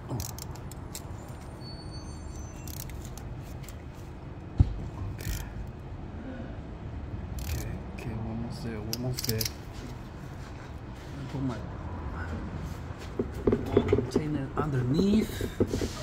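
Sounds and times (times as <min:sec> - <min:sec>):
ratchet wrench clicks: 0:00.1 - 0:01.1, 0:02.6 - 0:03.8, 0:05.2 - 0:05.6, 0:07.3 - 0:07.7, 0:08.9 - 0:09.6.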